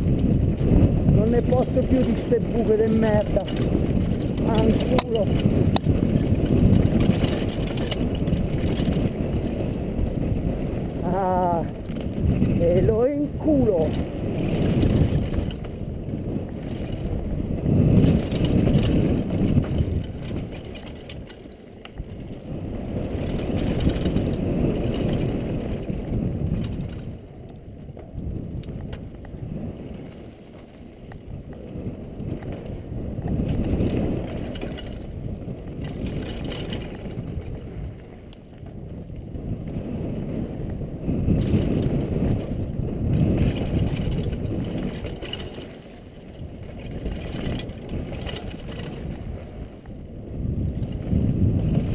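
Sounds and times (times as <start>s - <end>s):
bike rattling over bumps: 0.0s - 51.9s
wind rumble on microphone: 0.0s - 51.9s
tyres crunching over loose stones: 0.1s - 10.2s, 11.0s - 37.6s, 41.4s - 49.6s.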